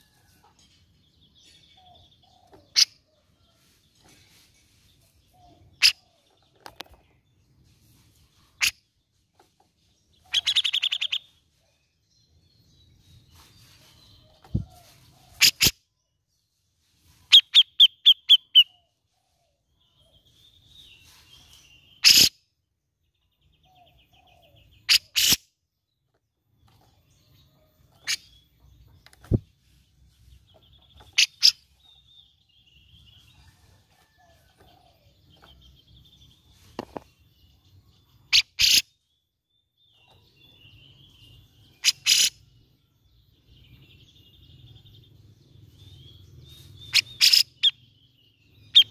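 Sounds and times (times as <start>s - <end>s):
bulbul calls: 10.2s - 11.3s, 38.3s - 38.9s, 41.8s - 42.4s, 46.8s - 47.9s, 48.6s - 48.9s.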